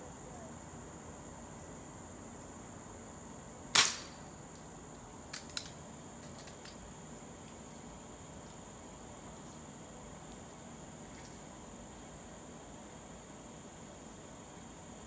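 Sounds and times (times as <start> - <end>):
air pistol shot crack: 3.7 - 4.2.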